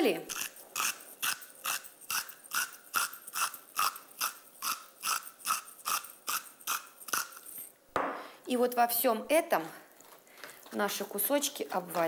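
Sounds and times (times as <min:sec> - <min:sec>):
salt mill grinding: 0:00.3 - 0:07.7.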